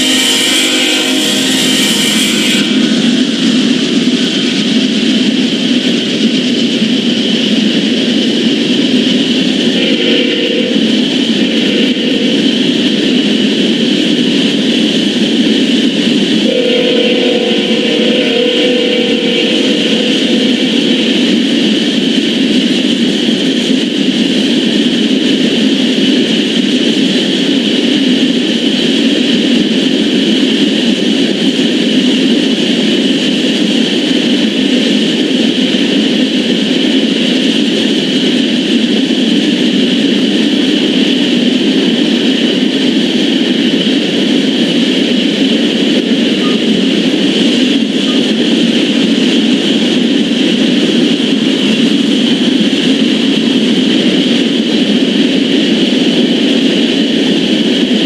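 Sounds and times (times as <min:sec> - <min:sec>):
train air horn: 0:00.0 - 0:03.7, 0:09.7 - 0:13.2, 0:16.1 - 0:21.9
freight train rumbling past: 0:00.0 - 0:58.0.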